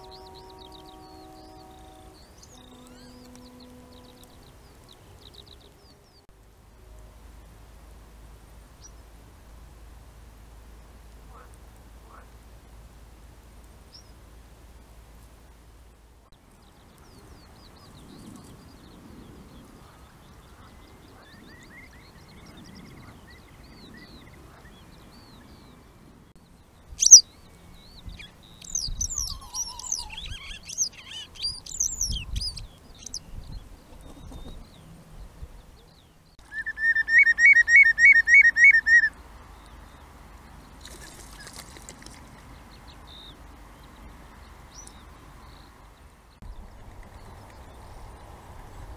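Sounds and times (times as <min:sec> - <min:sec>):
lapwings calling: 0:00.0 - 0:05.8, 0:27.0 - 0:27.2, 0:28.2 - 0:33.2, 0:36.4 - 0:39.2
bird piping notes: 0:00.0 - 0:07.1, 0:26.8 - 0:33.4, 0:36.4 - 0:39.8.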